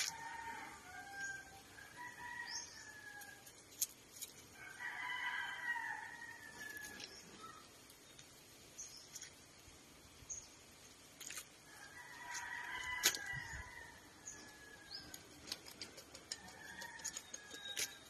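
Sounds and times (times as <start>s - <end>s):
rooster crowing: 0.0s - 3.5s, 4.6s - 7.0s, 11.7s - 14.9s, 16.3s - 18.0s
small birds chirping: 13.2s - 18.0s.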